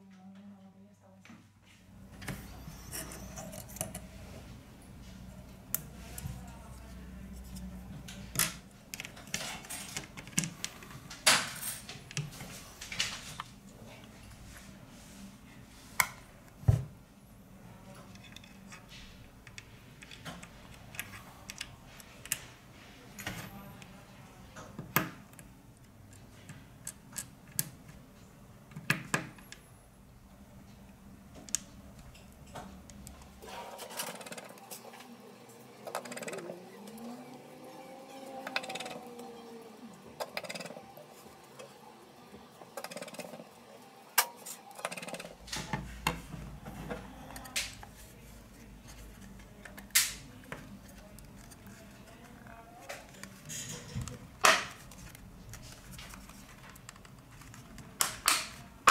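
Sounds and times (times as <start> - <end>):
soft handling noise: 30.6 - 58.9
small parts clicking and tapping: 38.3 - 39.2.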